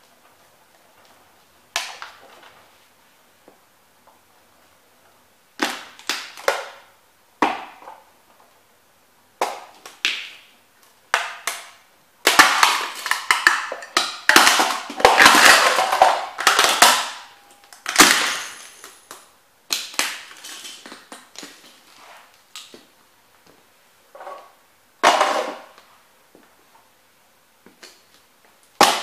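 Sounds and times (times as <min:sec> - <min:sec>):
plastic crunching and snapping: 0:05.6 - 0:06.8, 0:09.4 - 0:22.9.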